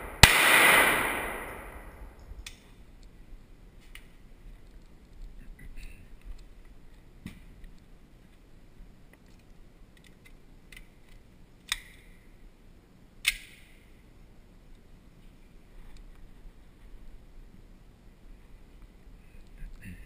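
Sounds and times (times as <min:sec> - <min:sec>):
gunshot cracks with ringing: 0:00.0 - 0:02.1
pistol handling clicks: 0:10.0 - 0:12.1, 0:13.2 - 0:13.7.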